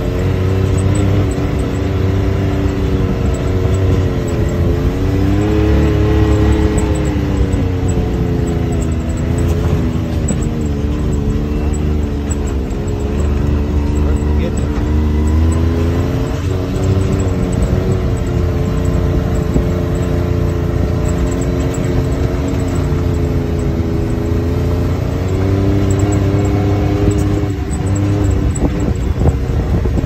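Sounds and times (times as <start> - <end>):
utility vehicle engine running: 0.0 - 30.0.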